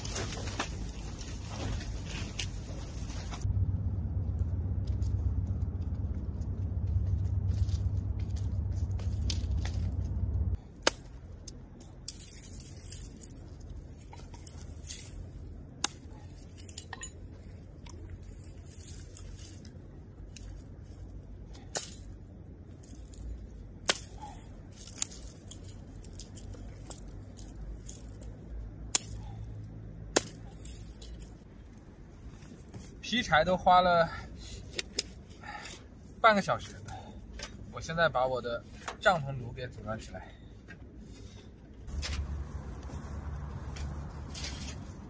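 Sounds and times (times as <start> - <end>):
dry wood cracking: 0.0 - 33.0
low wind rumble: 0.0 - 45.0.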